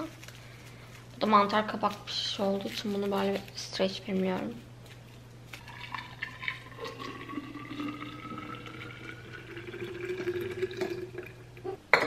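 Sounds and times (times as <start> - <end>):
juice pouring into glass carafe: 5.6 - 11.7.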